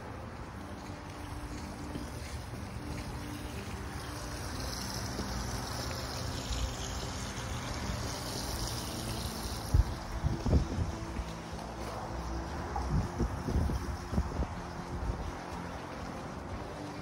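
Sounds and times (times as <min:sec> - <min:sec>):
fountain water trickling: 0:00.0 - 0:17.0
wind rumble on microphone: 0:06.4 - 0:17.0.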